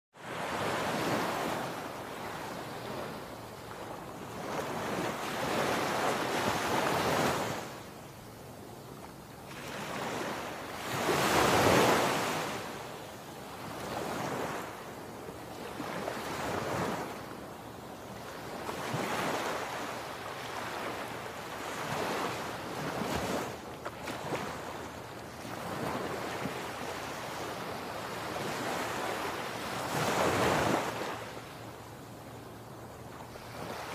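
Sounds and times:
wind: 0.1s - 33.9s
ocean surf breaking on shore: 9.5s - 13.0s, 18.3s - 32.2s.

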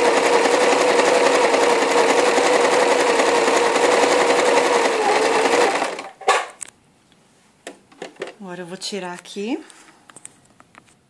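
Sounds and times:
sewing machine stitching: 0.0s - 6.4s.

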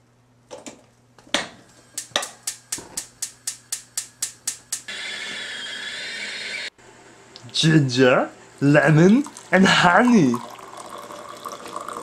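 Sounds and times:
gas burner hiss: 1.7s - 6.8s
stove igniter clicking: 1.9s - 4.9s.

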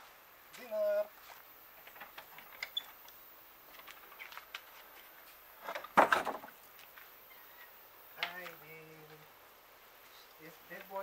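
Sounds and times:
wooden door scraping clatter: 5.6s - 6.5s.

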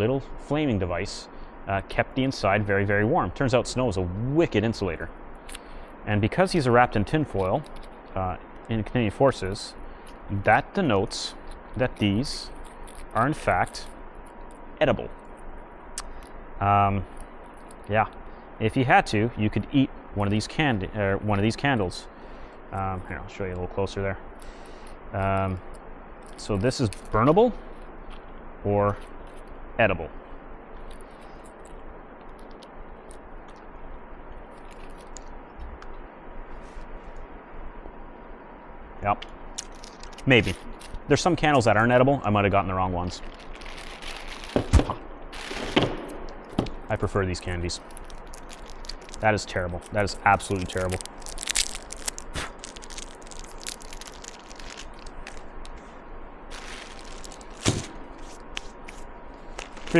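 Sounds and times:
room hum: 0.0s - 59.9s
foil crinkling: 8.8s - 14.0s, 26.3s - 27.4s, 34.5s - 35.3s, 39.6s - 42.0s, 43.0s - 55.9s, 56.5s - 59.9s
candle wax breaking: 47.8s - 55.8s, 56.5s - 59.9s.

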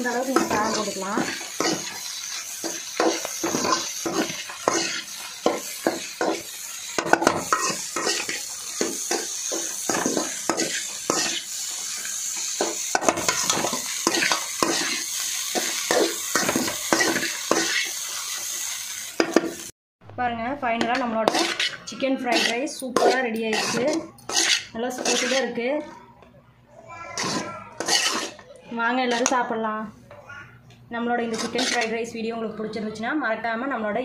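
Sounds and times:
metal spatula scraping a pan: 0.0s - 18.4s, 20.7s - 25.6s, 27.2s - 28.4s, 29.0s - 29.4s, 31.2s - 32.1s
frying sizzle: 0.0s - 19.8s, 20.8s - 25.4s, 27.2s - 28.4s.

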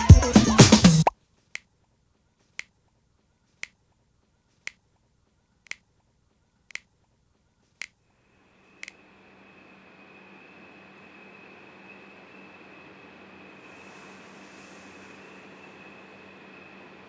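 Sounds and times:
faint steady hum: 1.2s - 17.0s
finger snaps: 2.5s - 2.8s, 3.6s - 3.8s, 4.6s - 4.8s, 5.6s - 5.9s, 6.7s - 6.9s, 8.8s - 9.0s.

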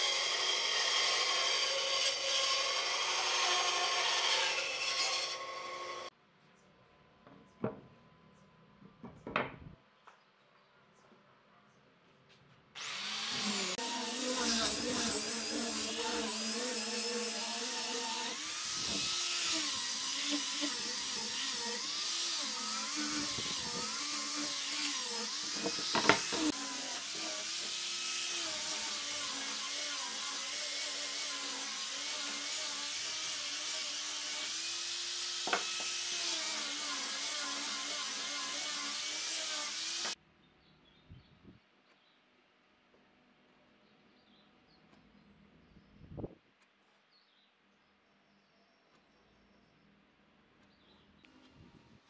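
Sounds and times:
angle grinder sanding wood: 0.0s - 6.1s, 12.8s - 40.2s.

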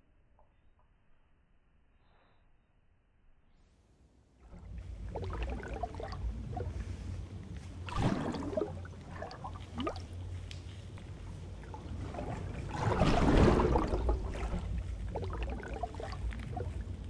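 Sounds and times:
steady low rumble: 3.8s - 17.0s
underwater bubbles gurgling: 4.4s - 7.0s, 7.8s - 10.2s, 11.5s - 17.0s.

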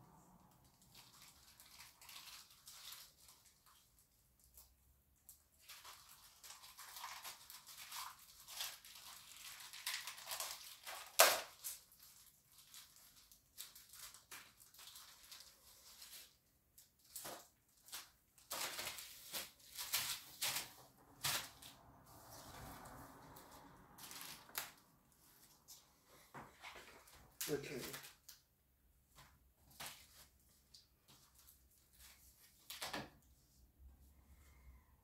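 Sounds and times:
toy packaging crinkling and tearing: 0.7s - 3.9s, 5.5s - 21.8s, 24.0s - 24.8s.

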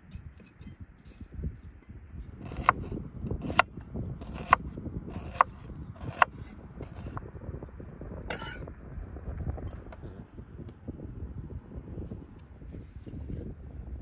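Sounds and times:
knife blade scraping board: 2.3s - 7.2s, 8.3s - 8.7s
knife chopping on wooden board: 2.4s - 7.2s.

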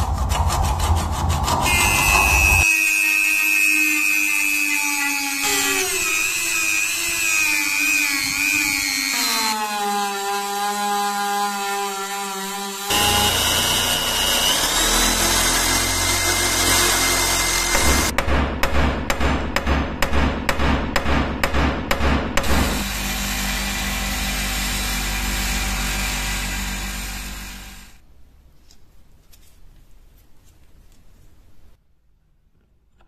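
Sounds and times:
rotary tool sanding metal: 0.1s - 11.0s, 11.6s - 18.1s
drill boring through steel: 1.7s - 18.2s, 22.4s - 28.0s.

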